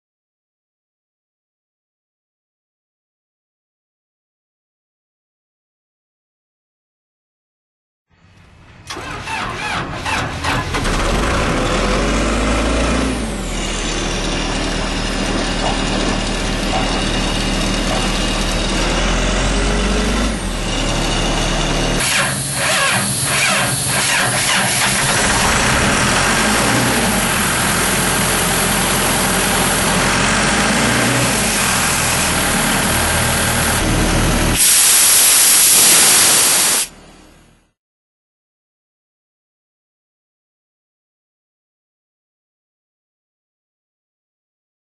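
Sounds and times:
diesel engine running: 0:08.5 - 0:37.6
loud rush of air: 0:34.4 - 0:36.9.

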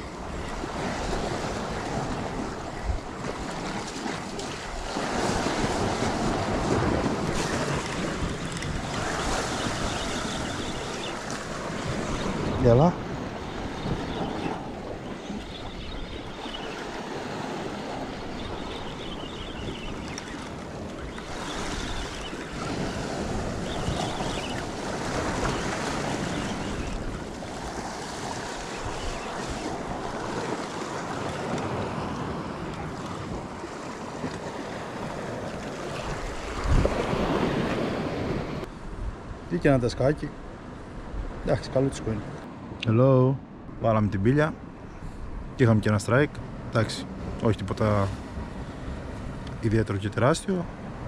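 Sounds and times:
wind buffeting microphone: 0:00.0 - 0:39.6
sea waves: 0:00.0 - 0:51.0.

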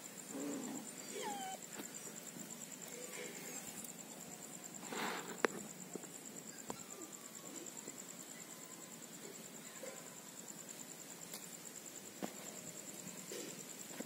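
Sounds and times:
puppy whining: 0:00.4 - 0:01.7.

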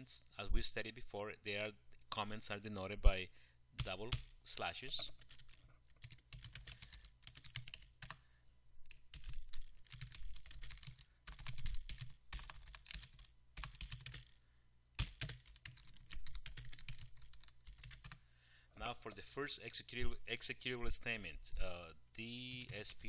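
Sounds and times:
computer keyboard typing: 0:04.9 - 0:08.2, 0:08.9 - 0:14.4, 0:15.0 - 0:18.2.

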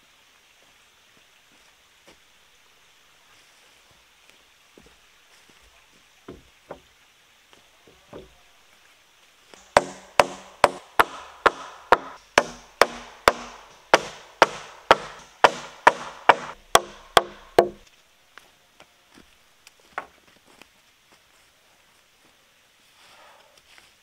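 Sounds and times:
hammer striking wooden joists: 0:08.1 - 0:08.4, 0:09.6 - 0:17.8.

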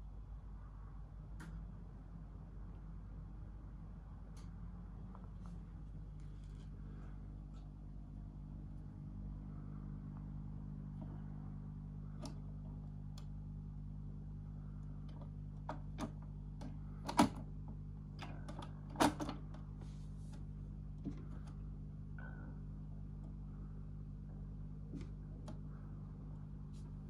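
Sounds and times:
low electrical hum: 0:00.0 - 0:27.0
tonearm clicks and knocks: 0:15.1 - 0:17.5.

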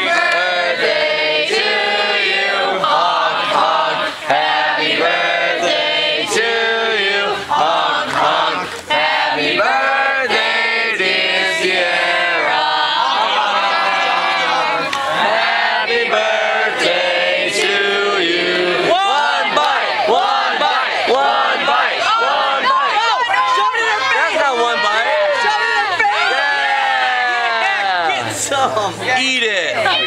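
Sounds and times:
people clapping: 0:00.0 - 0:01.0, 0:07.6 - 0:09.0, 0:13.0 - 0:15.5, 0:19.0 - 0:26.3
group singing in unison: 0:00.0 - 0:23.1.

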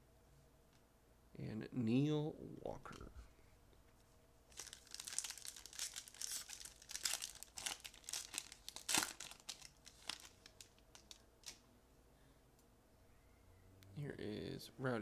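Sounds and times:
foil wrapper crinkling and tearing: 0:04.5 - 0:11.6.

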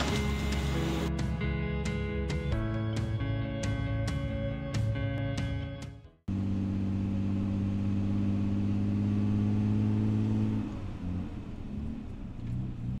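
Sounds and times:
car engine running: 0:00.0 - 0:01.2, 0:06.3 - 0:13.0.

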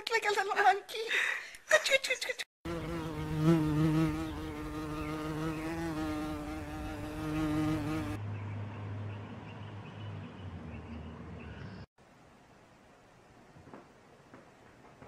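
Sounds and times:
flying insect buzzing: 0:02.7 - 0:08.2.

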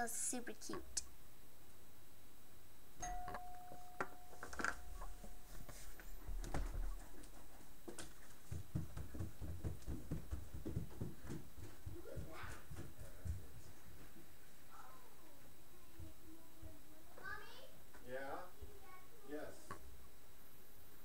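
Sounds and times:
footsteps on carpet: 0:05.0 - 0:14.2.

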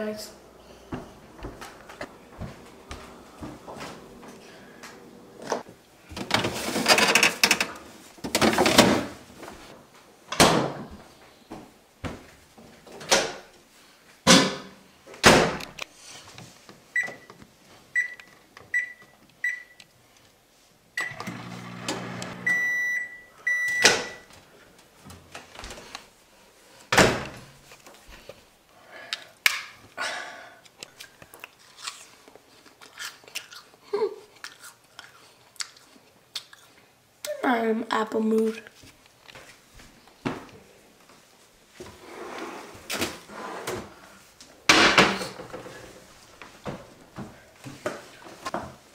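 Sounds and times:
microwave humming: 0:00.4 - 0:05.6, 0:21.0 - 0:24.2
keypad beeps: 0:22.4 - 0:24.2
long beep: 0:22.4 - 0:24.2.

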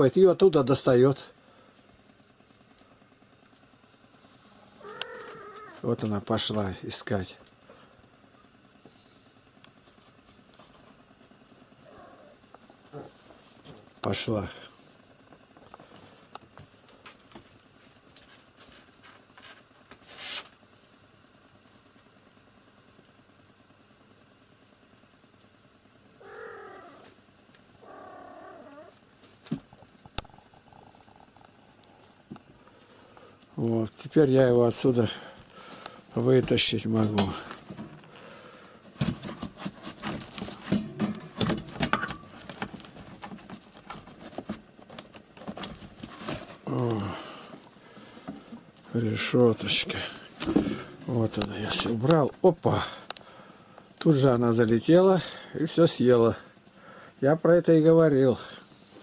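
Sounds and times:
paper rustling scrape: 0:18.6 - 0:20.6, 0:43.8 - 0:46.7.

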